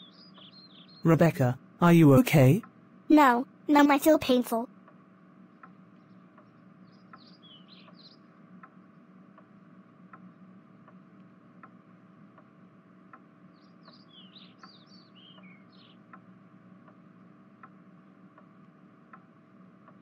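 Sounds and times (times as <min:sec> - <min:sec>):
birds chirping: 0:00.0 - 0:04.5, 0:05.4 - 0:09.1, 0:13.4 - 0:16.3
low steady hum: 0:00.0 - 0:20.0.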